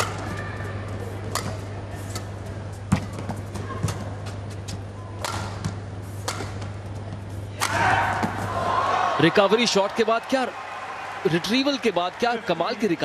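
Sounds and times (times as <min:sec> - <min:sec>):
crowd noise: 0:00.0 - 0:13.0
racket striking shuttlecock: 0:01.3 - 0:01.6, 0:05.2 - 0:06.8, 0:07.6 - 0:08.5.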